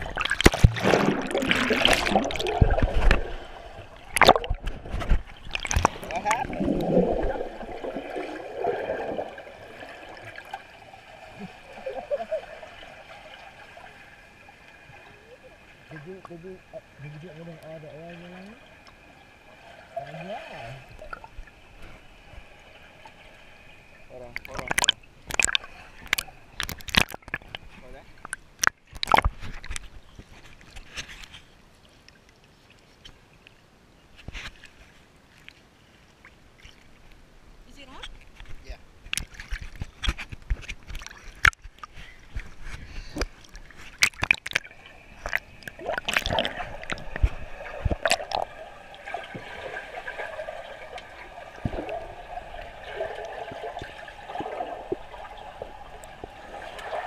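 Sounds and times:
muffled underwater water swishing: 0.0s - 33.3s, 34.1s - 57.0s
steady underwater hiss: 0.8s - 26.6s.

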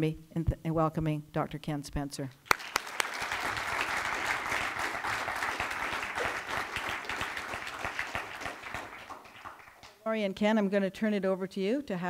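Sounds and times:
audience applauding: 2.5s - 10.0s.

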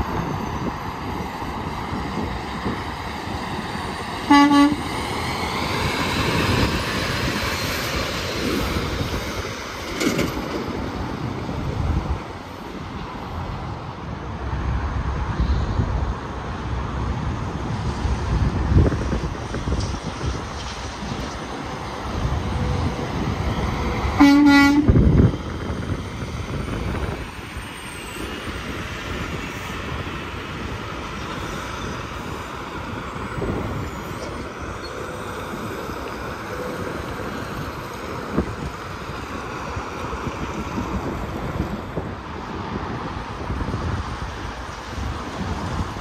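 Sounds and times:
highway traffic noise: 0.0s - 46.0s
truck air horn blast: 4.2s - 4.9s, 24.1s - 25.0s.

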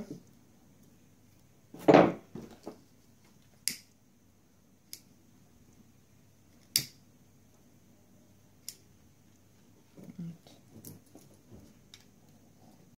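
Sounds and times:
knock: 1.8s - 2.5s.

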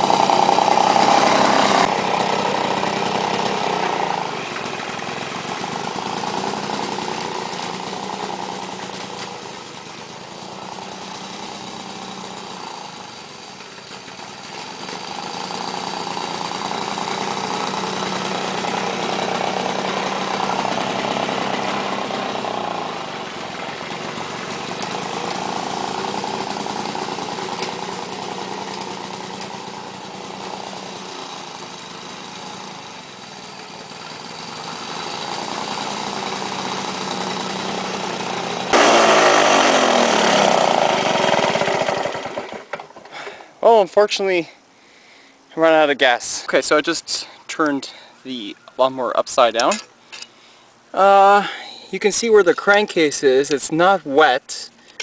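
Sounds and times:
push mower engine cutting grass: 0.0s - 43.4s.

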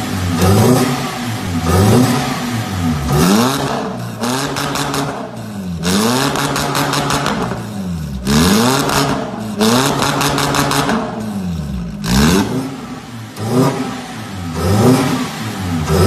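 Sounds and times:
car engine revving raspy exhaust: 0.0s - 16.0s.

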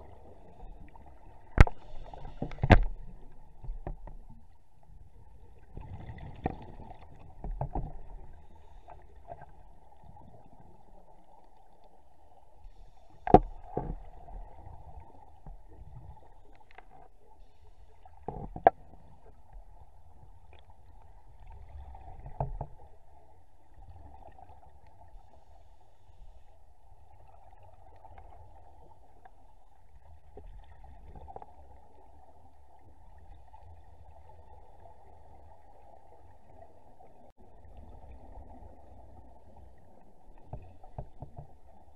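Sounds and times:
muffled underwater rumble and hiss: 0.0s - 41.9s
sharp knocks and clicks: 2.4s - 3.0s.

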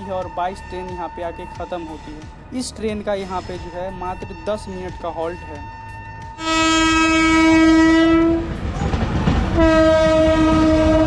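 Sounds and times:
train noise: 0.0s - 11.0s
locomotive horn blasts: 4.4s - 8.6s, 9.5s - 11.0s.

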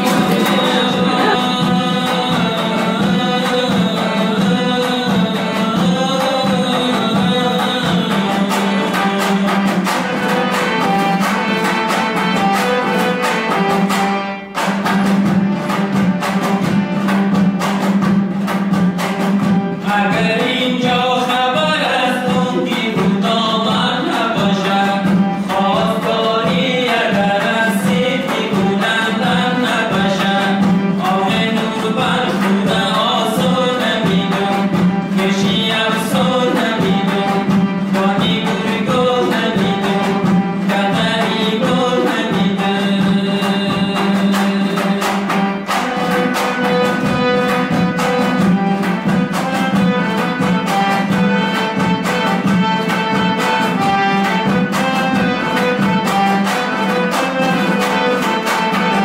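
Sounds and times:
song with singing and drums: 0.0s - 59.0s.

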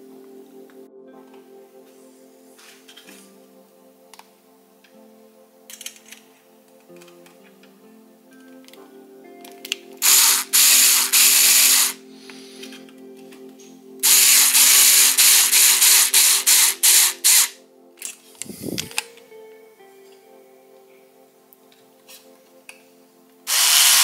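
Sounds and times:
cordless driver driving a screw: 10.0s - 12.0s, 14.0s - 17.6s, 23.5s - 24.0s.

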